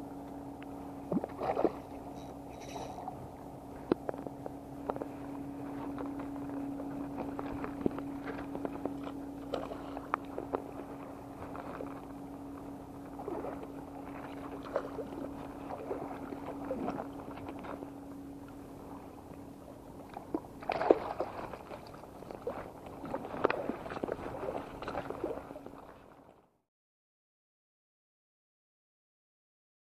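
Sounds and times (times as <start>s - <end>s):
steady low hum: 0.0s - 26.6s
fish splashing and thrashing: 1.1s - 12.1s, 13.2s - 17.9s, 20.2s - 25.7s.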